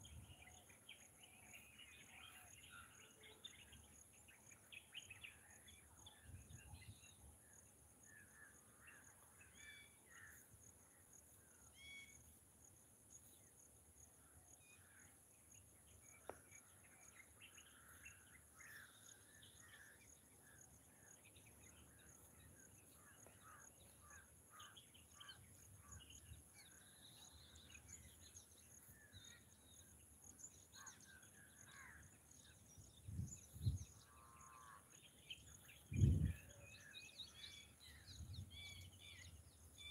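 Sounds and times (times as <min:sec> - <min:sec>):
steady high-pitched hiss: 0:00.0 - 0:39.9
bird chirps: 0:14.5 - 0:39.9.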